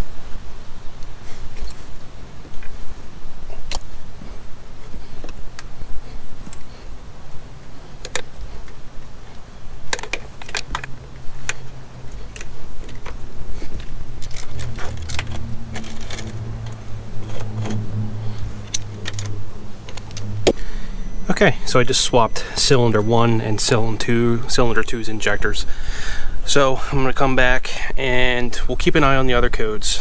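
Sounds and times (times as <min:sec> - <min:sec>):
low steady hum: 0:00.0 - 0:30.0
engine parts clicking and rattling: 0:07.9 - 0:20.7.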